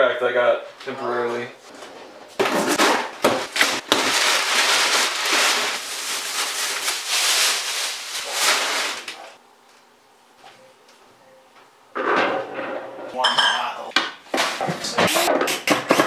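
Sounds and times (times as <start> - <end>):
plastic bag rustling: 1.6 - 9.4
packing paper crinkling: 2.4 - 9.4.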